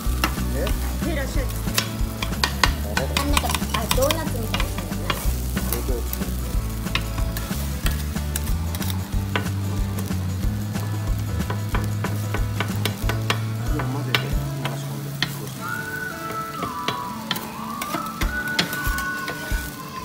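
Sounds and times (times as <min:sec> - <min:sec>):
griddle sizzle: 0:00.0 - 0:20.0
metal spatulas chopping and scraping: 0:00.2 - 0:09.6.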